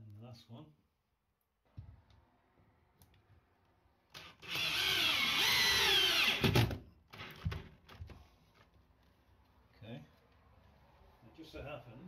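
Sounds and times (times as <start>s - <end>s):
drill driving a screw into wood: 4.1s - 7.5s.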